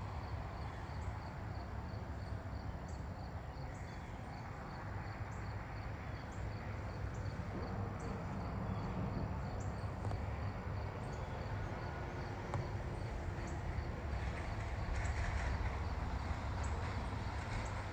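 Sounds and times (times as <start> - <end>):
crickets chirping: 0.2 - 17.9.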